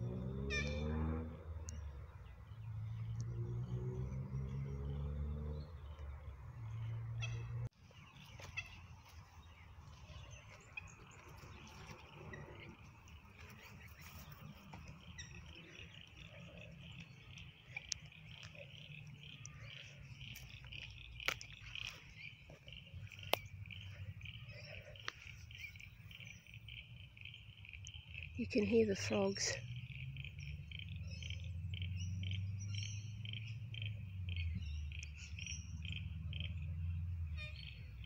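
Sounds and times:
frogs chirring: 0:10.1 - 0:38.0.

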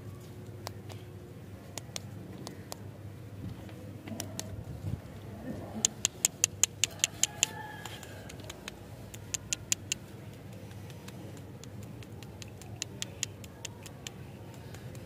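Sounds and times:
lollipops clicking and tapping: 0:05.8 - 0:15.0.

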